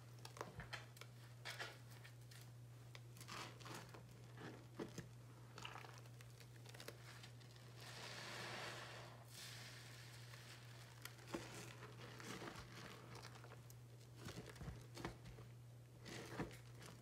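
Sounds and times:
wet soap crunching and squishing: 2.1 - 8.6, 9.3 - 17.0
soft fizzing hiss: 7.8 - 11.1.

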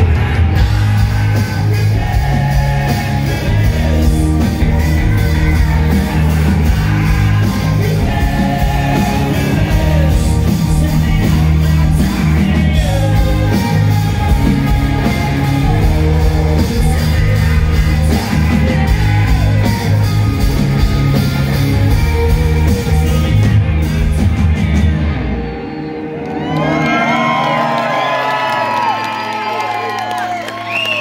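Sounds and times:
person singing: 0.0 - 20.7
live rock band playing: 0.0 - 31.0.

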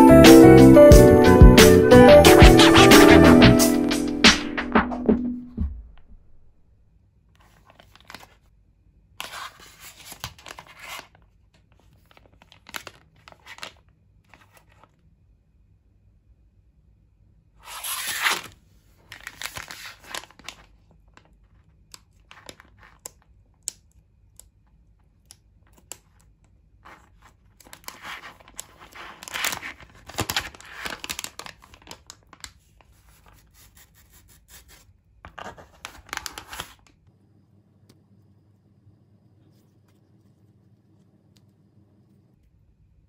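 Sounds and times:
plastic pouch crinkling and tearing: 12.0 - 13.9, 19.0 - 23.1, 26.9 - 33.2, 35.7 - 36.9.

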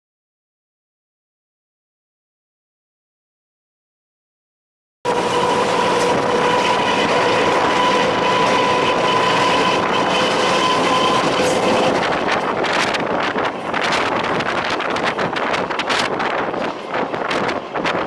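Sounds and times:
high whine: 5.1 - 18.0
train running noise: 5.1 - 18.0
wind gusts on microphone: 5.1 - 18.0.

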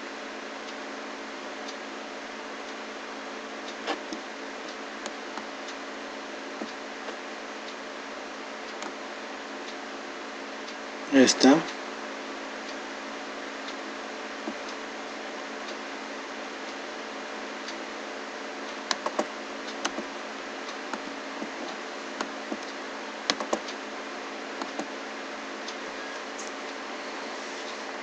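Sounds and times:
mouse and keyboard clicks: 23.3 - 23.7.

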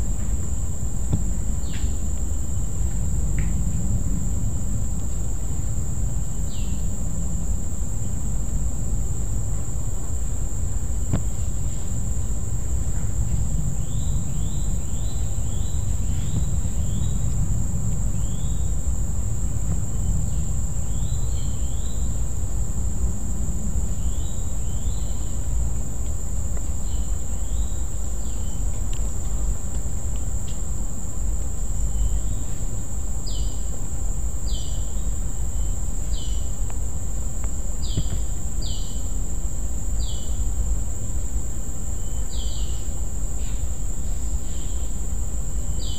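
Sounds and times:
high-pitched insect drone: 31.6 - 45.9.

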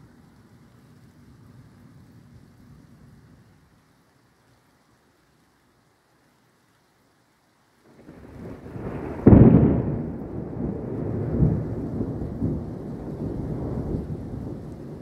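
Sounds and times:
thunder rumbling and cracking: 8.0 - 15.0.

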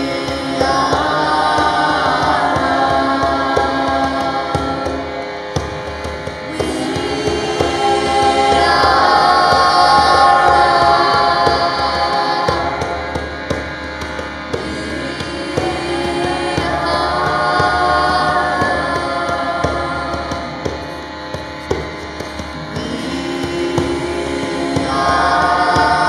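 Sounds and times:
harmonium drone: 0.0 - 26.0
group of voices chanting: 22.6 - 26.0.

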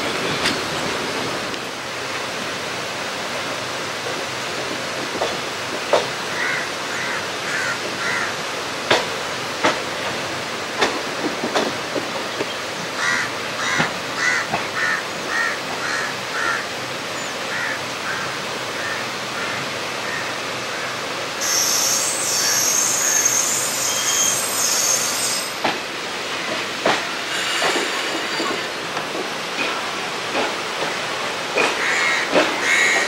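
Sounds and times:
train running on rails: 0.0 - 33.0
train wheels squealing: 21.4 - 25.7, 27.2 - 28.7.

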